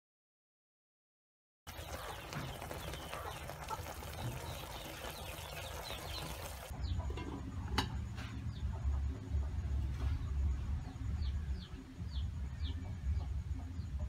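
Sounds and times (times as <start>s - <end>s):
sauce bubbling and sizzling: 1.7s - 6.8s.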